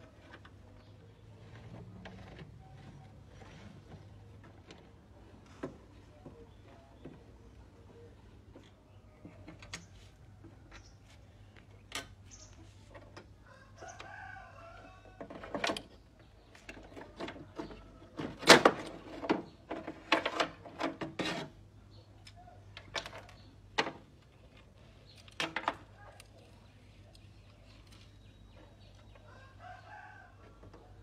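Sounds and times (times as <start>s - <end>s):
rooster crowing: 13.5s - 15.2s, 29.3s - 30.6s.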